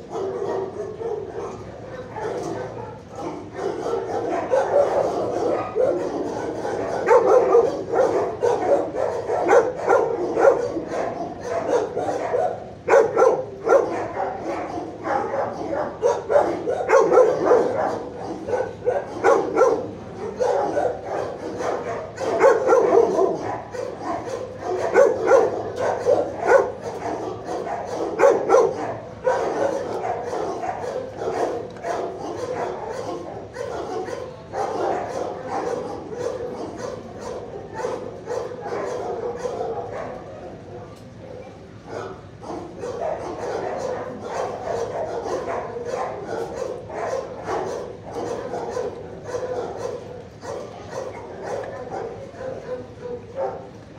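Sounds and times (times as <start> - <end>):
many dogs barking: 0.0 - 53.9.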